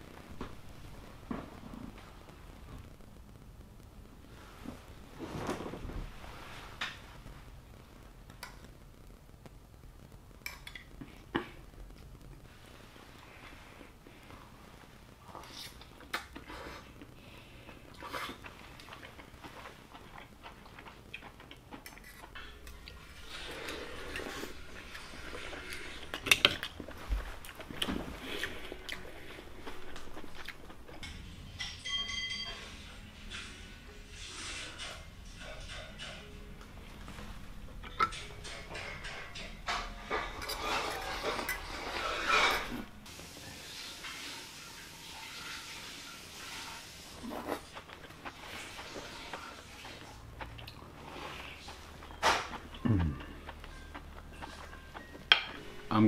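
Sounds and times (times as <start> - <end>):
fork clinking on plates and shells: 31.0 - 33.5.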